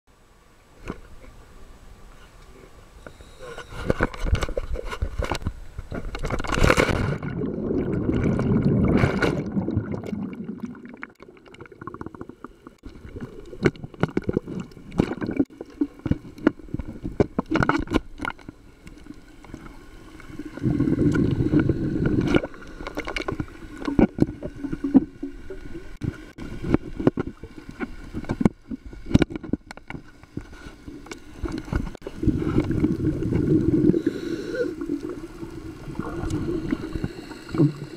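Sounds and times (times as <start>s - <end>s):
rush of water: 3.2s - 12.2s, 12.8s - 37.9s
muffled underwater bubbling: 6.9s - 18.6s, 19.2s - 29.2s, 30.9s - 37.9s.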